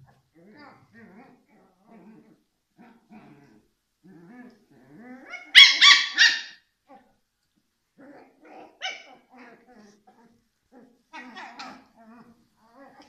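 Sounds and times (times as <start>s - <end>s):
puppies growling softly: 0.0s - 5.5s, 6.9s - 13.0s
high-pitched puppy yaps: 5.3s - 6.7s, 8.6s - 9.3s.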